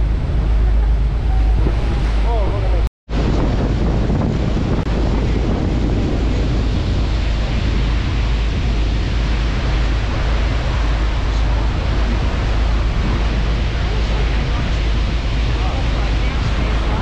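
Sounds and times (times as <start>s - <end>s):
rushing water: 0.0s - 17.0s
wind buffeting microphone: 0.0s - 17.0s.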